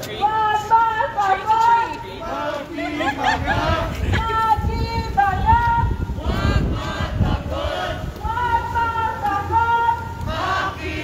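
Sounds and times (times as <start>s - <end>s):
low street rumble: 0.0s - 11.0s
crowd chanting in unison: 2.0s - 4.3s, 6.0s - 11.0s.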